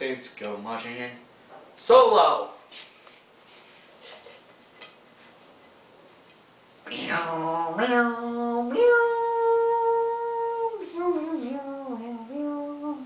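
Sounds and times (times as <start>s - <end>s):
man singing wordless notes: 6.9s - 13.0s.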